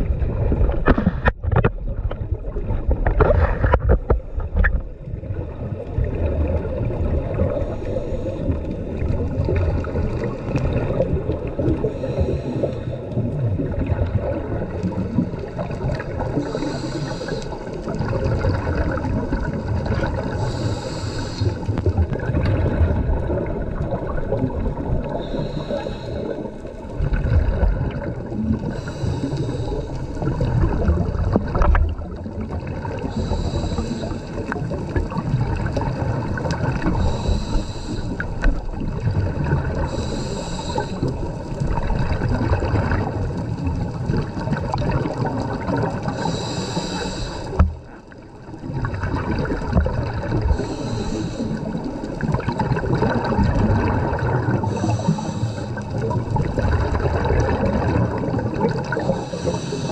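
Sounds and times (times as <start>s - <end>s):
exhaled bubbles rumbling: 0.0s - 59.9s
regulator hiss on inhalation: 11.9s - 13.0s, 16.4s - 17.8s, 20.4s - 21.7s, 25.2s - 26.6s, 28.7s - 30.0s, 33.1s - 34.6s, 37.0s - 38.2s, 39.9s - 41.1s, 46.1s - 47.6s, 50.6s - 51.7s, 54.7s - 55.8s, 59.0s - 59.9s.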